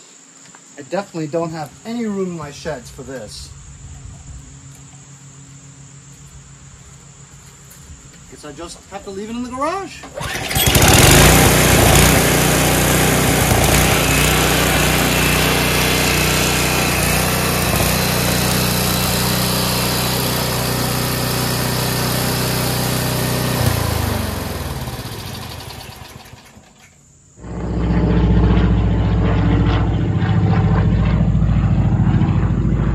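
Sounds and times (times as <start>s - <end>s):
snowblower engine running: 10.1s - 26.8s, 27.4s - 32.9s.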